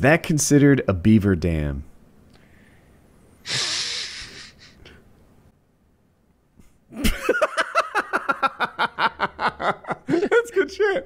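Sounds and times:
breath into a microphone: 2.4s - 5.0s
men laughing loudly: 6.9s - 10.7s.

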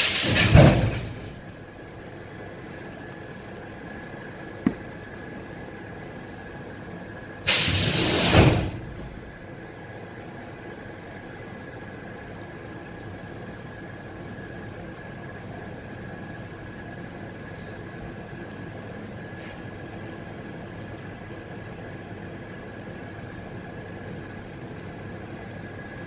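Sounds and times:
compressed air hiss: 0.0s - 0.6s, 7.5s - 8.8s
high-pitched train equipment hum: 0.0s - 26.0s.

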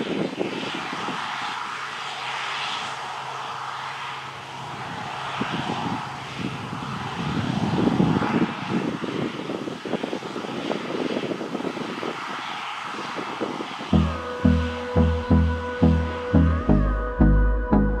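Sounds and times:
combine harvester drone: 0.0s - 18.0s.

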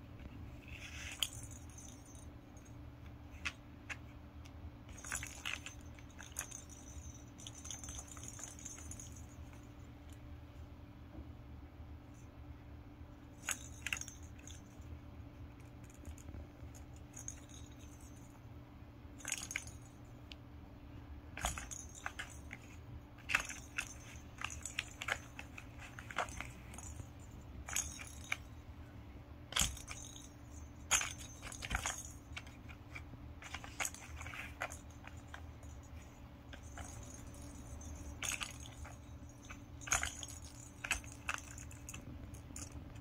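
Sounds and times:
toy bell ball jingling: 0.8s - 2.8s, 4.9s - 9.9s, 13.3s - 14.9s, 15.7s - 18.4s, 19.2s - 20.2s, 21.4s - 28.7s, 29.5s - 43.0s.

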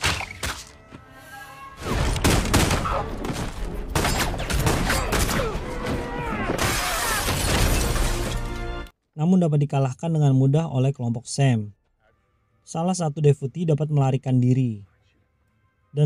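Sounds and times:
background music: 0.0s - 9.0s
glass shattering: 6.6s - 8.6s.

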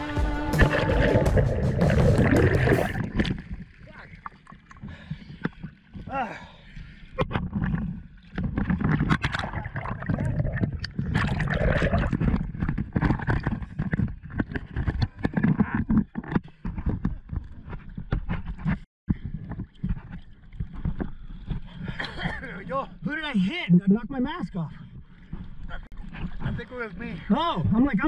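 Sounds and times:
water bubbling: 0.0s - 6.2s, 7.2s - 16.0s
seawater sloshing and splashing: 0.0s - 23.4s, 24.7s - 28.0s.

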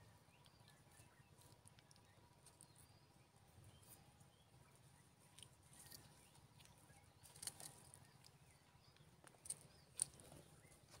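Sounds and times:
faint bird chirps: 0.0s - 11.0s
faint clicks and rustles: 0.4s - 3.0s, 5.2s - 11.0s.

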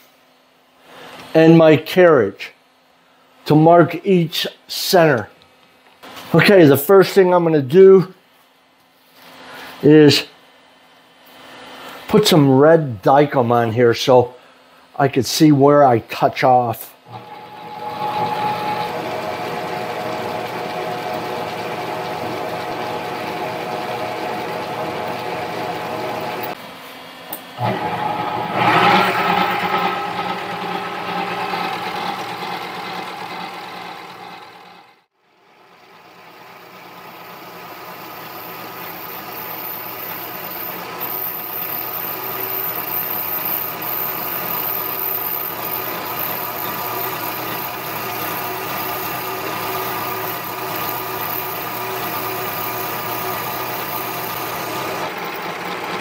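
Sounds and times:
tool cutting aluminium: 17.1s - 26.6s, 27.6s - 33.4s, 38.4s - 55.1s
lathe motor whine: 17.1s - 35.1s, 35.7s - 56.0s.

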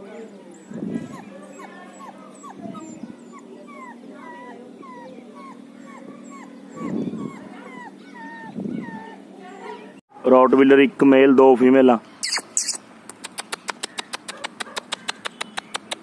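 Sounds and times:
puppy whimpering: 0.1s - 10.0s.

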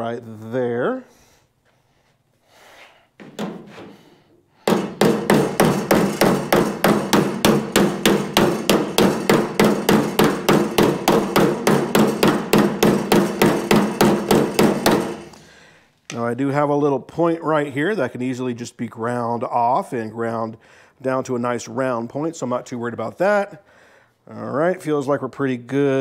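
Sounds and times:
hammer striking sheet metal: 4.6s - 15.4s.

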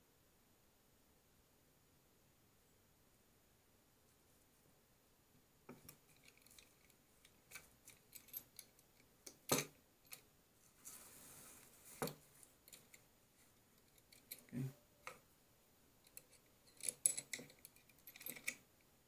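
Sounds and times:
metal clicks and clinks: 5.7s - 10.3s, 13.8s - 15.2s, 16.0s - 18.6s.

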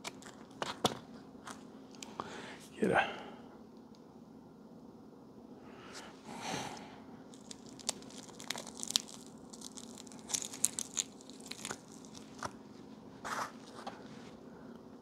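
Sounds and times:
cellophane wrap crinkling: 0.0s - 1.6s, 7.3s - 14.0s.

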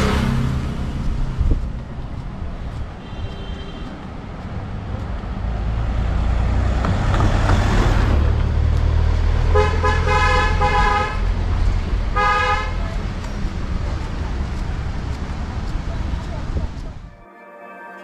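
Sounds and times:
vehicle engine rumbling: 0.0s - 17.2s
car horn honking: 3.0s - 4.1s, 9.5s - 11.3s, 12.1s - 12.8s.

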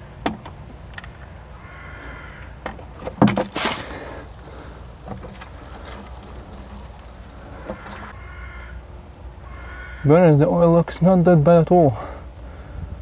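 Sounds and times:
drain nut clattering: 2.6s - 8.1s.

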